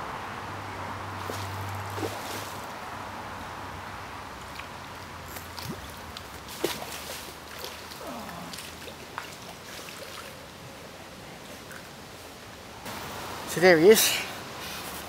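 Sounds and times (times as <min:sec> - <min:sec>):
water splashing and sloshing: 0:00.9 - 0:13.4
sharp splashes or knocks: 0:01.2 - 0:02.6, 0:05.3 - 0:10.2.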